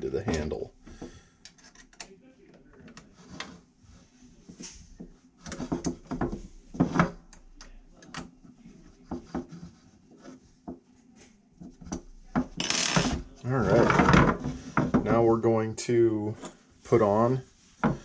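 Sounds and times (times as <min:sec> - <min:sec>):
clicks knocks and rubbing of plastic: 0:04.5 - 0:08.4.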